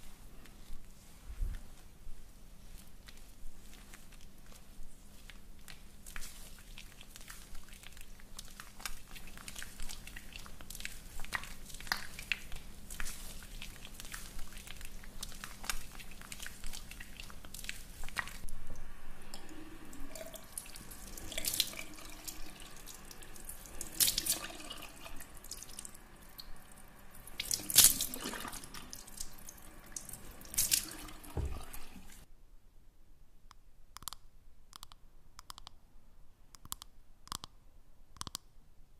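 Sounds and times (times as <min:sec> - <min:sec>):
wet clicks and drips: 0:05.2 - 0:19.5, 0:20.1 - 0:31.9.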